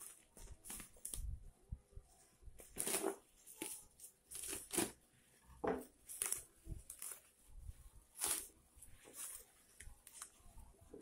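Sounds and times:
plastic wrapping ripping: 2.6 - 5.0, 8.1 - 10.3.

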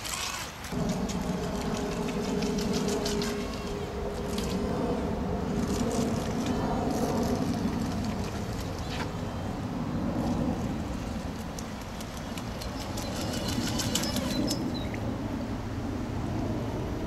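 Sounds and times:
flowing river water: 0.0 - 15.8.

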